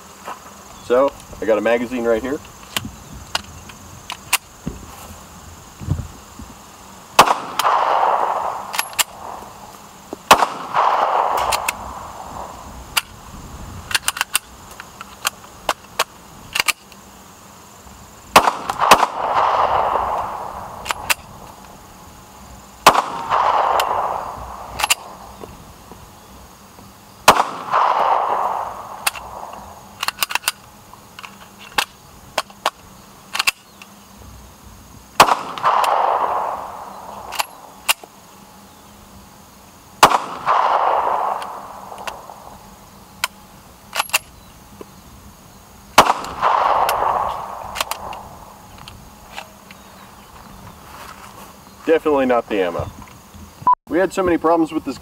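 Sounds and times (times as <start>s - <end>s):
pistol shots with echo: 7.2s - 9.6s, 10.3s - 12.6s, 18.3s - 21.2s, 22.8s - 25.3s, 27.2s - 29.8s, 35.2s - 37.7s, 40.0s - 42.5s, 46.0s - 48.6s
pistol slide clicks: 29.0s - 30.6s.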